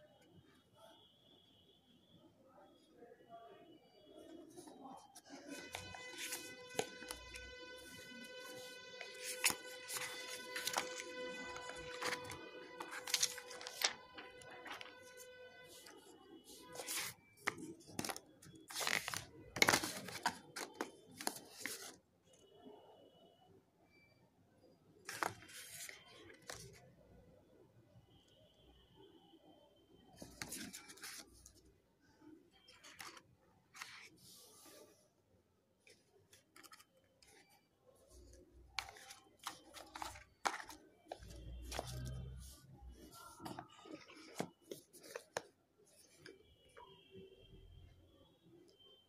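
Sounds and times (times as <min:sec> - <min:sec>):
cardboard box and paper rustling: 0:05.2 - 0:16.0, 0:16.6 - 0:21.9, 0:38.8 - 0:42.4.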